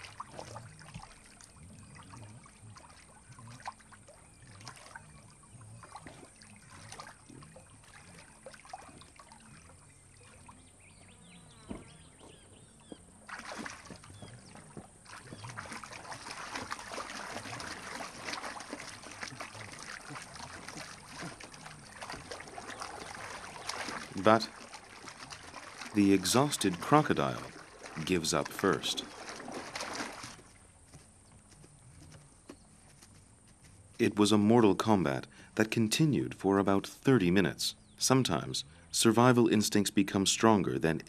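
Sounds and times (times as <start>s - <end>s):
water splashing: 0.0s - 32.2s
water lapping and dripping: 0.0s - 41.0s.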